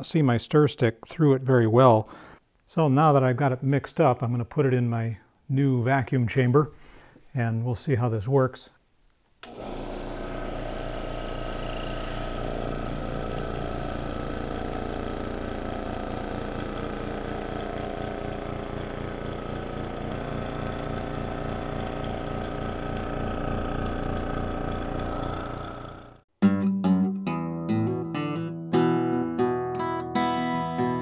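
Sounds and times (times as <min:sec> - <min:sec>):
vacuum pump pulsing hum: 0:09.4 - 0:26.2.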